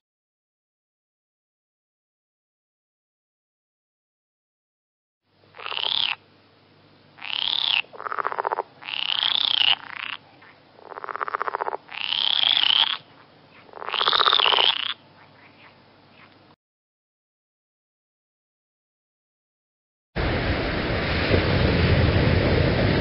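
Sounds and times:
frog-like calls rising and falling: 5.5 - 6.2, 7.2 - 16.4.

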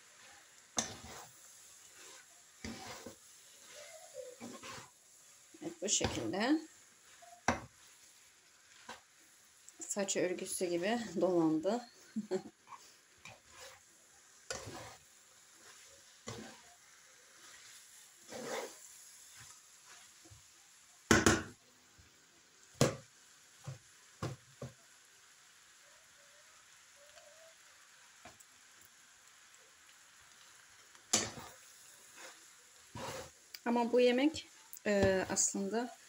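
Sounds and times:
noodles sizzling in pan: 0.0 - 36.0
spatula scraping and knocking pan: 0.2 - 9.2, 9.8 - 20.5, 31.0 - 33.4, 34.9 - 35.7.

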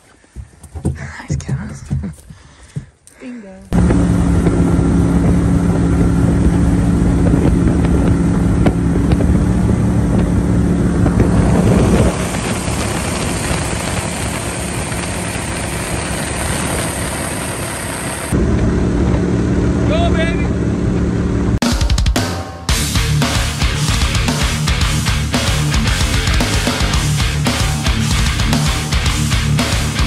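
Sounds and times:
boat motor droning: 3.7 - 21.6
wind on microphone: 3.8 - 19.5.

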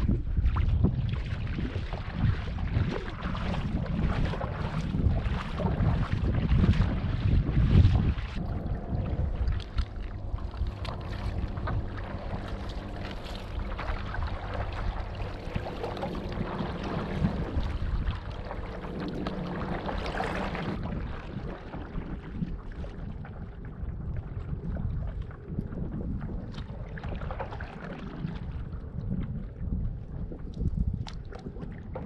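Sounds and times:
water splashing and sloshing: 0.0 - 32.0
wind buffeting microphone: 0.0 - 32.0
faint low hum: 7.8 - 32.0.

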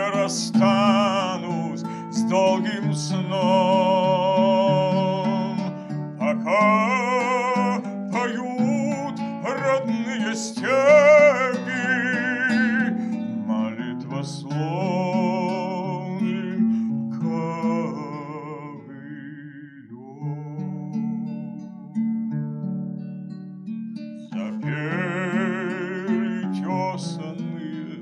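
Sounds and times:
plucked lute: 0.0 - 19.8, 20.4 - 28.0
man singing slow song: 0.0 - 21.6, 24.3 - 28.0.

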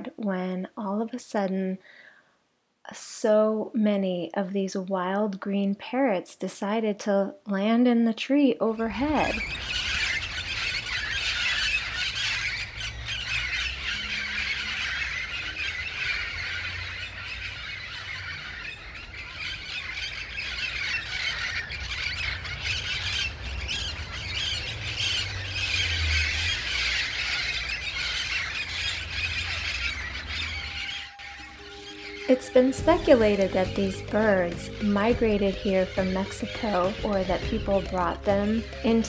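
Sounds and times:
low rumble: 8.8 - 13.3
parrots screeching: 8.9 - 34.8, 35.4 - 39.0.

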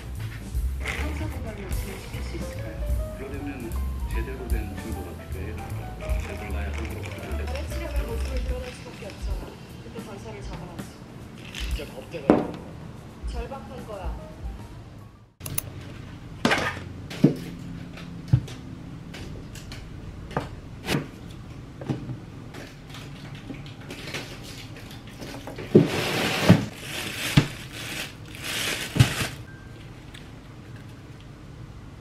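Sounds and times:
plastic bag rustling: 6.0 - 9.5, 23.9 - 29.5.

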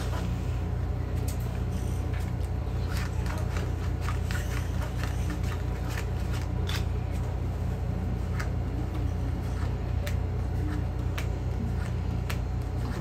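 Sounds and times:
steady low hum: 0.0 - 13.0
playing cards clicking and snapping: 2.2 - 7.2, 9.6 - 13.0.

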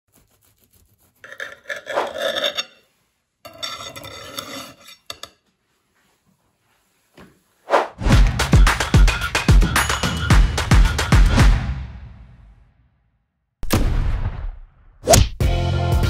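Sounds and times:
bread knife sawing through cake: 0.1 - 2.6.

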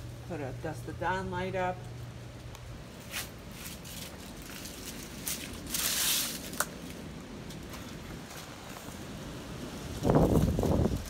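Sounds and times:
footsteps on steps and grass: 2.8 - 9.1.

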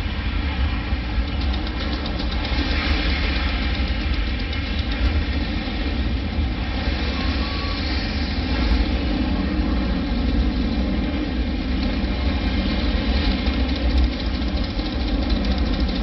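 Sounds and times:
rocket liftoff rumble over speakers: 0.0 - 16.0.

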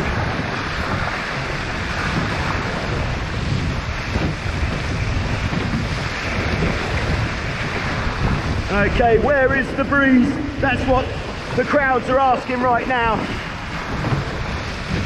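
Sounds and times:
water splashing along hulls: 0.0 - 15.0
wind noise on microphone: 0.0 - 15.0.

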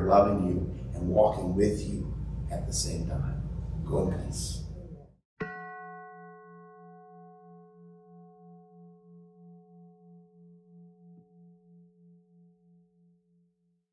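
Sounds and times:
singing bowl ringing: 5.4 - 13.4.

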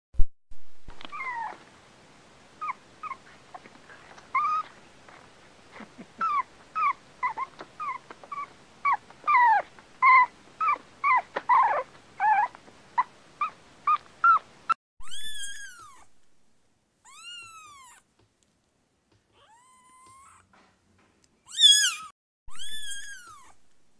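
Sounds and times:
dog whining: 1.0 - 1.6, 2.6 - 4.8, 5.8 - 16.1, 19.4 - 20.5, 21.5 - 23.6
cat meowing: 17.0 - 18.0, 19.4 - 20.5, 21.5 - 23.6.

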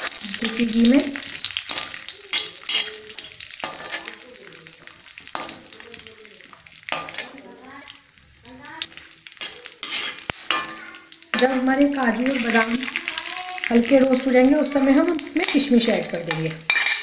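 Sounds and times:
metal spatula scraping pan: 0.0 - 4.2, 6.9 - 7.5, 9.4 - 14.4, 15.0 - 17.0
nuts sizzling in hot fat: 0.0 - 17.0.

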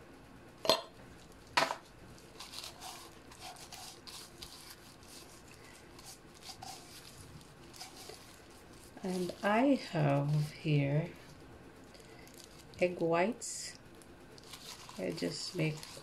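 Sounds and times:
gloved hand rubbing fish: 2.3 - 10.6, 14.4 - 16.0.

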